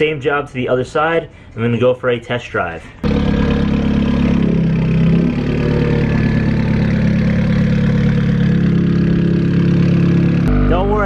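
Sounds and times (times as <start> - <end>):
car engine idling: 3.0 - 11.0.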